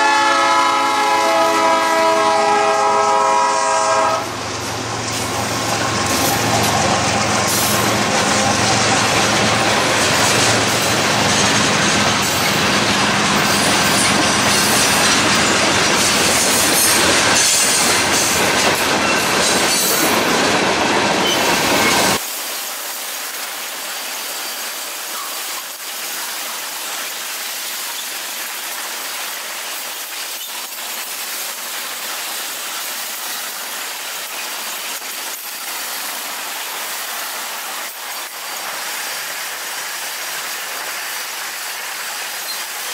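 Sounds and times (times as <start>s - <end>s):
diesel locomotive passing: 0.0s - 22.2s
train wheel and rail noise: 0.0s - 42.9s.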